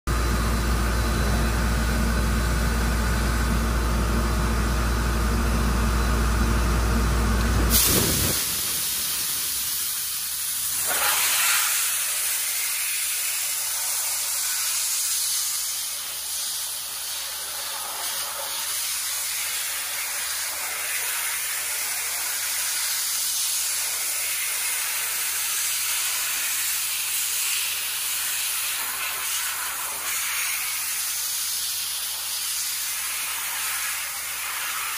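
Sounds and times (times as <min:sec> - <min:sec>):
low machine rumble with hum: 0:00.1 - 0:10.6
dry ice blasting gun hissing: 0:07.7 - 0:34.9.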